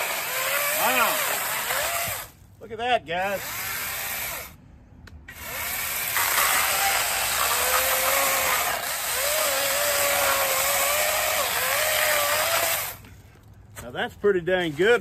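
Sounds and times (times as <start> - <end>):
electric chainsaw cutting log: 0.0 - 2.4, 3.3 - 4.6, 5.3 - 13.1.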